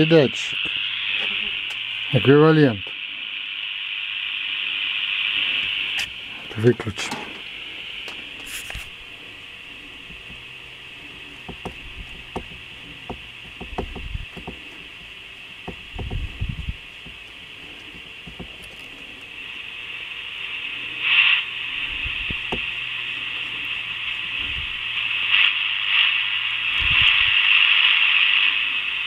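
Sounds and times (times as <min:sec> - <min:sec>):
radio static hiss: 0:00.0 - 0:29.0
radio control clicks and knocks: 0:05.6 - 0:19.3, 0:21.8 - 0:24.6.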